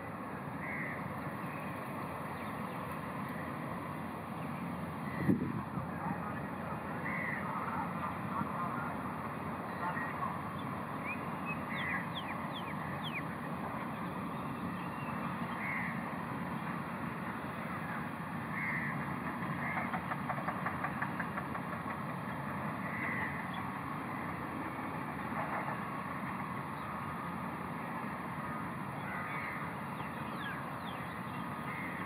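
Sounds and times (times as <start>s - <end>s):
distant road traffic rumble: 0.0s - 32.0s
bird calls: 9.7s - 16.0s, 29.0s - 32.0s.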